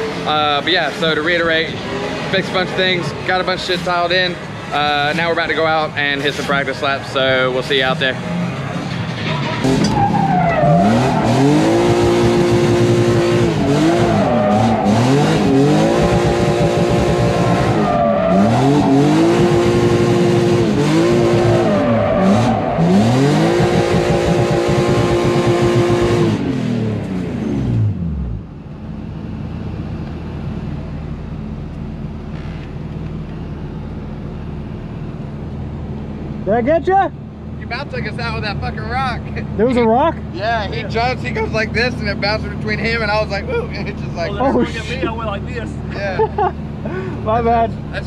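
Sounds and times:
loud tire noise: 0.0 - 48.0
car engine revving hard: 9.6 - 28.4.

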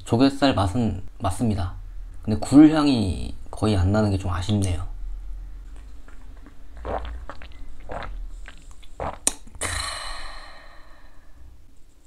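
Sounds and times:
man swallowing: 5.7 - 10.8
breathy exhale: 9.6 - 11.6.

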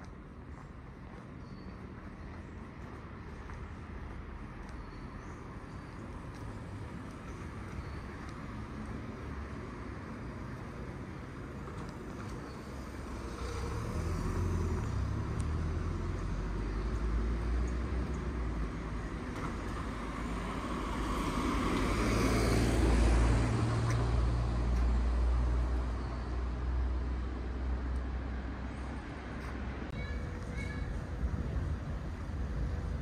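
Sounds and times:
street traffic: 0.0 - 33.0
vehicle passing close: 12.8 - 25.6.

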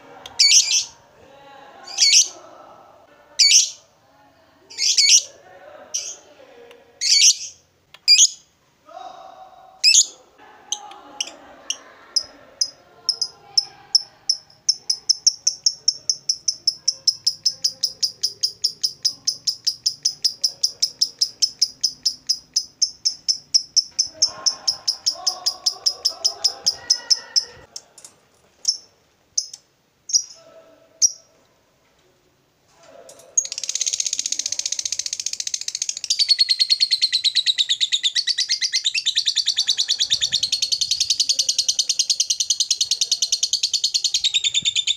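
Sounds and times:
lovebird chattering: 0.4 - 1.0, 1.9 - 2.4, 3.4 - 3.8, 4.7 - 5.3, 7.0 - 8.5, 9.8 - 27.7, 33.4 - 44.9.

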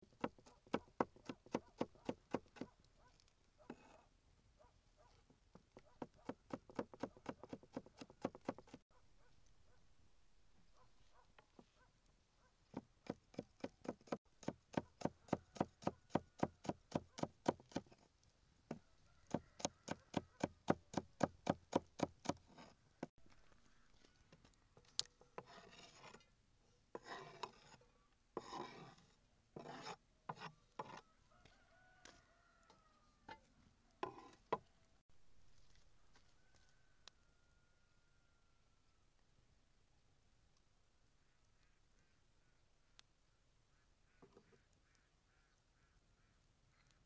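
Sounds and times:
knife chopping vegetables on board: 0.2 - 2.7, 6.0 - 8.8, 12.8 - 17.9
scrapes and knocks of wood and metal: 24.3 - 26.3, 27.0 - 27.8, 28.4 - 31.1, 33.3 - 34.7.

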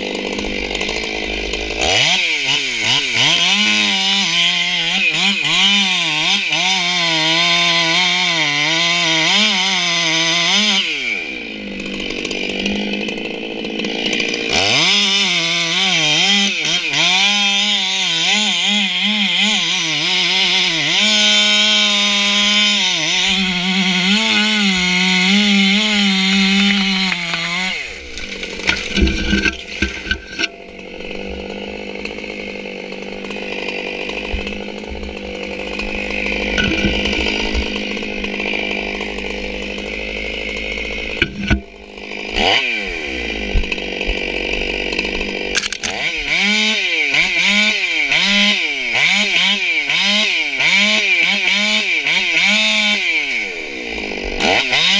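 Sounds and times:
chainsaw cutting at full throttle: 0.0 - 54.9
chainsaw idling: 0.0 - 54.9
sharp knocks and cracks: 20.9 - 46.3.

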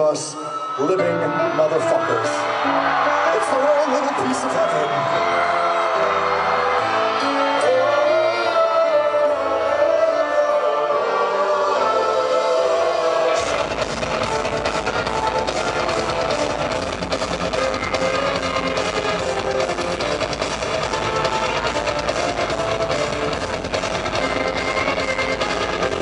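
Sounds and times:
person singing: 7.2 - 16.6
drums: 13.2 - 26.0
electric guitars: 13.2 - 26.0
bass guitar: 13.4 - 26.0.

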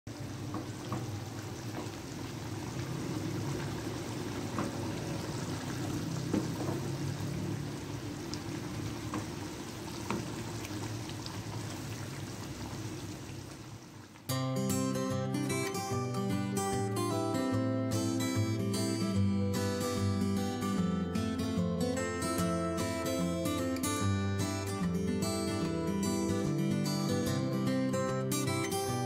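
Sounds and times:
gravy bubbling in a frying pan: 0.1 - 14.3
acoustic guitar music: 14.3 - 29.0.

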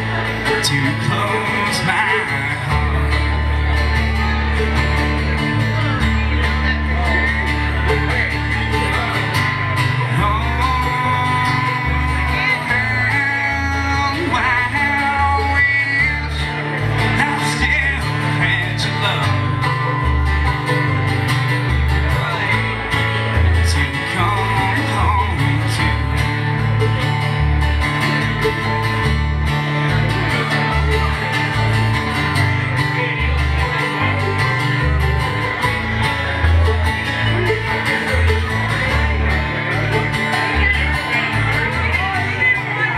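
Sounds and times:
man singing: 0.0 - 4.6, 6.7 - 20.6, 22.0 - 26.6
acoustic guitars playing: 0.0 - 42.9
banjo: 0.0 - 42.9.

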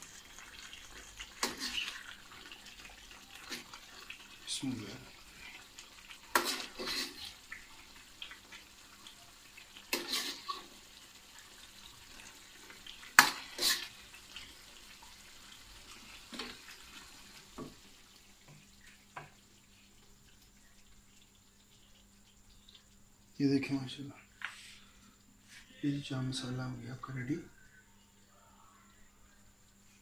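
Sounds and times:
metal spoon scraping a pan: 1.4 - 2.1, 6.3 - 7.4, 9.9 - 10.7, 13.2 - 14.0.

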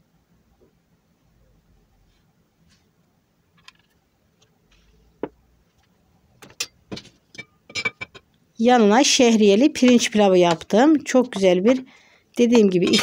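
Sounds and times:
glass lid clinking: 6.6 - 8.2.

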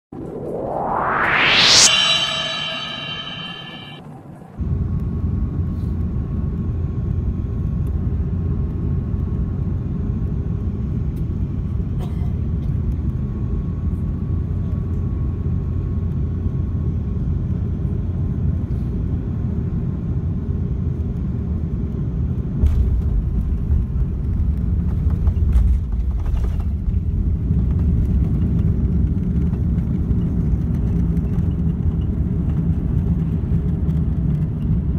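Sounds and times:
rising whoosh: 0.0 - 4.0.

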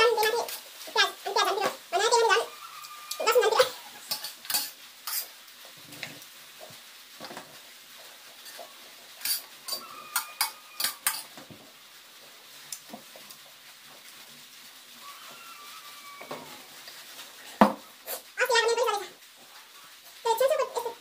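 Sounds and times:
metal spoon scraping metal plate: 3.0 - 5.3, 9.2 - 11.3.

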